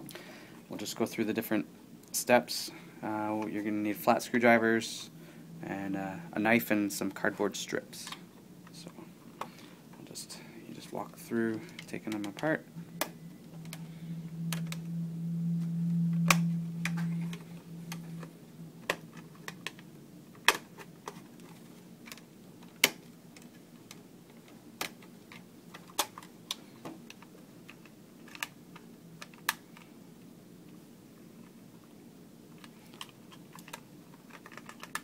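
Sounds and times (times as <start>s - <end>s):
low steady hum: 0.0s - 35.0s
plastic clicks and snaps: 29.2s - 29.9s.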